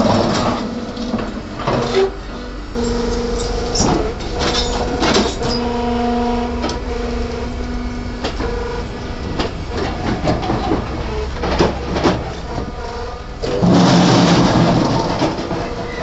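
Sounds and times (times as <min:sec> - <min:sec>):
machine humming tone: 0:00.0 - 0:16.0.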